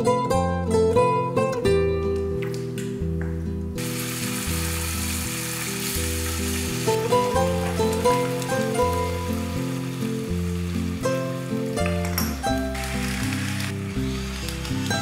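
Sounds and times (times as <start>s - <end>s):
plucked guitar music: 0.0s - 15.0s
meat sizzling in a frying pan: 3.8s - 15.0s.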